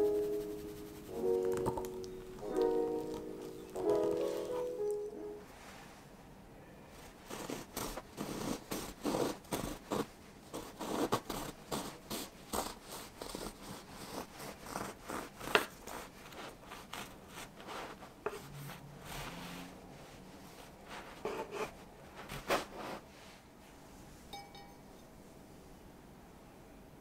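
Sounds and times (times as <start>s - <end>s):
knife sawing through bread: 7.0s - 19.7s, 20.9s - 23.0s.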